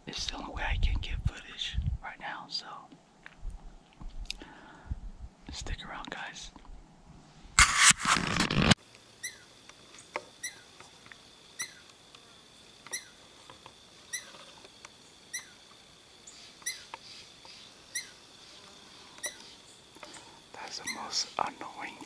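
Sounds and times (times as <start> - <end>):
loud rustle: 7.6 - 8.8
faint high whine: 7.6 - 22.0
squirrel chirping: 9.2 - 11.9, 12.6 - 13.3, 13.9 - 22.0.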